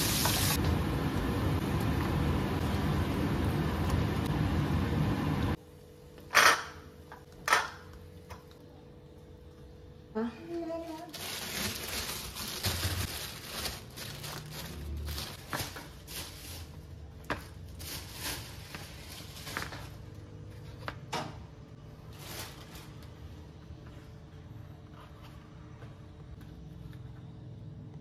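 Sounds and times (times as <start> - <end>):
plastic bag rustling: 10.6 - 20.3, 21.8 - 23.3.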